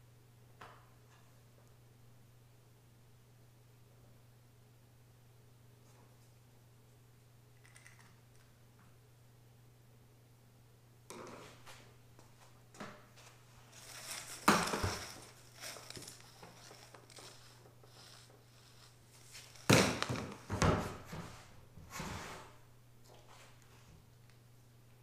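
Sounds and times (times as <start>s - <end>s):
scraping and rustling: 13.2s - 21.4s.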